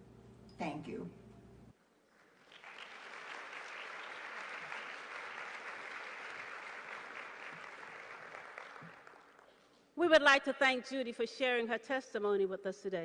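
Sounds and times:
audience applauding: 2.1 - 9.7.

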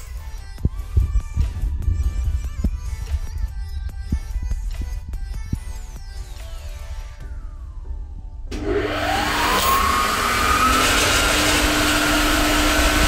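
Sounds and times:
pump hum: 8.5 - 13.0
water pump motor whine: 8.5 - 13.0.

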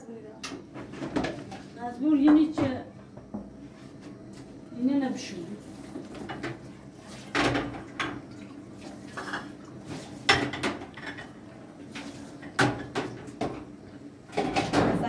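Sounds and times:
dishes and utensils clinking: 10.2 - 11.4.

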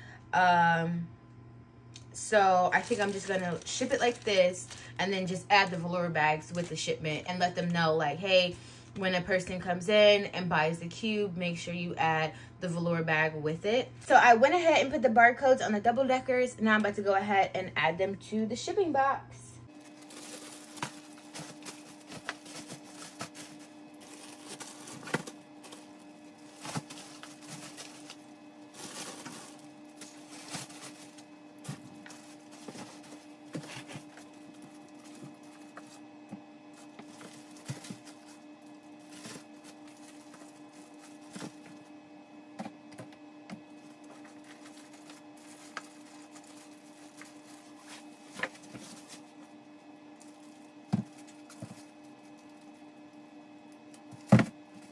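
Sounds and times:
steady hum: 0.0 - 54.9
plastic crinkling: 2.6 - 5.0, 19.7 - 36.1, 36.7 - 41.8, 43.5 - 49.5, 50.2 - 52.8.

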